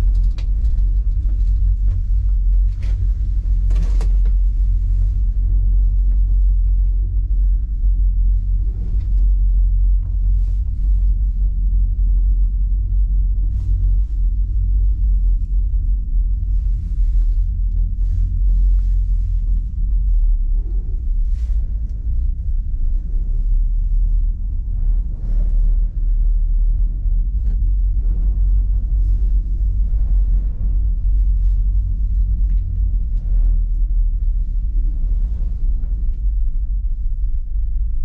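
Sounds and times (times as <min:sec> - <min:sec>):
gondola cabin low rumble: 0:00.0 - 0:38.0.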